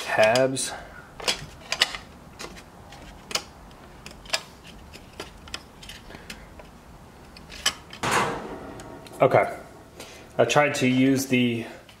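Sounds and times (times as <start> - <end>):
plastic parts clicking together: 1.2 - 8.0.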